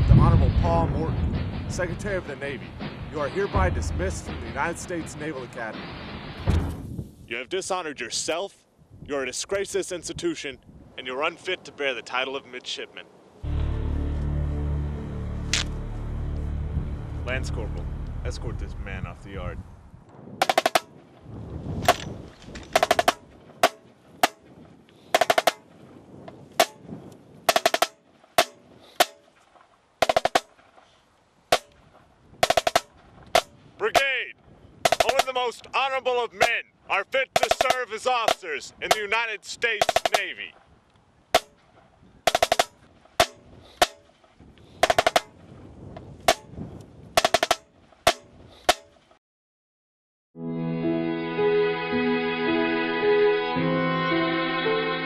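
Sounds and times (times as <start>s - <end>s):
marching snare drum: 1.7s - 5.6s, 20.4s - 20.9s, 22.8s - 24.4s, 25.2s - 25.6s, 26.6s - 26.8s, 27.5s - 29.2s, 30.0s - 30.5s, 32.4s - 34.1s, 34.8s - 35.4s, 37.4s - 39.1s, 39.8s - 40.3s, 42.3s - 44.0s, 44.8s - 45.3s, 47.2s - 48.8s.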